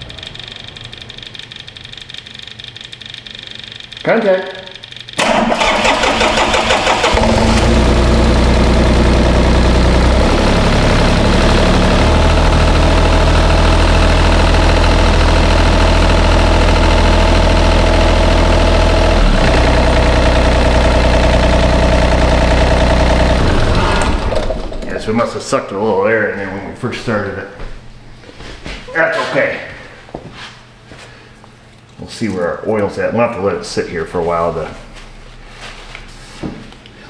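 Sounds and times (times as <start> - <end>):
diesel engine starting and running: 0.0 - 2.6, 5.2 - 25.9.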